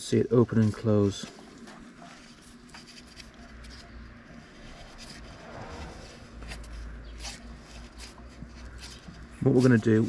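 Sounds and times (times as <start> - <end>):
light clicks and rubbing: 0.5 - 10.0
low rumble: 5.2 - 7.0.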